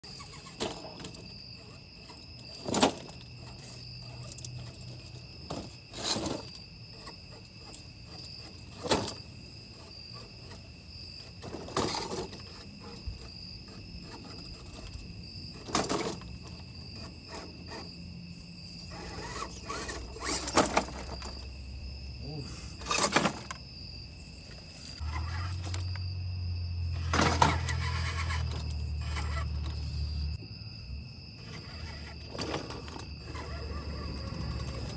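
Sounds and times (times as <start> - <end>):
night insects droning: 0.0 - 34.9.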